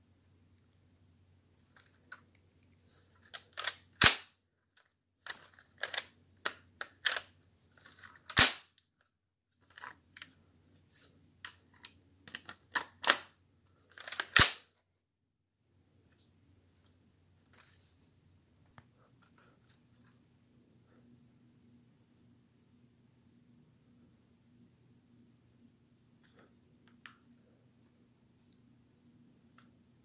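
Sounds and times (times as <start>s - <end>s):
plastic clicks and rattles: 3.2s - 4.1s, 4.8s - 8.4s, 11.4s - 14.5s
loud snaps of toy gun action: 3.6s - 4.4s, 8.3s - 8.8s, 14.1s - 14.7s.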